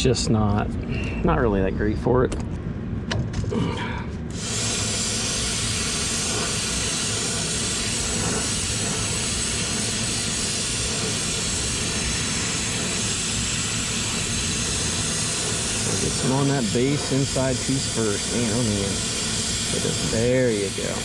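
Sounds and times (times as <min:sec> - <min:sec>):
brazing torch hissing: 0:04.2 - 0:21.0.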